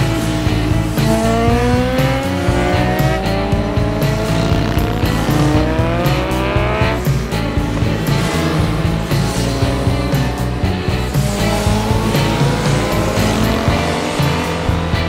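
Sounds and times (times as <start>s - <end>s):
background music: 0.0s - 15.0s
motorcycles accelerating past: 0.0s - 15.0s.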